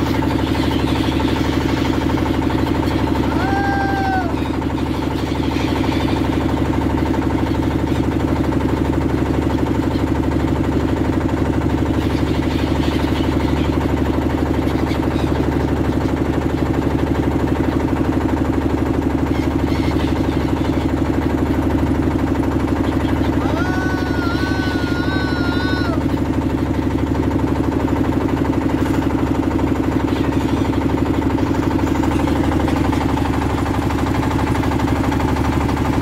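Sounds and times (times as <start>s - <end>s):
boat engine chugging: 0.0s - 36.0s.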